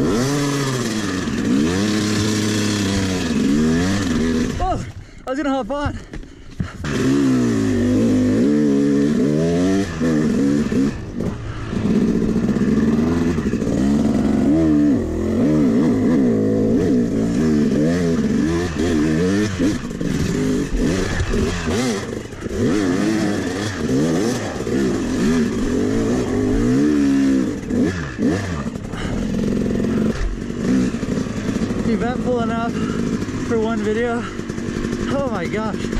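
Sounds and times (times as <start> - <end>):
dirt bike engine revving: 0.0 - 5.0, 6.6 - 35.9.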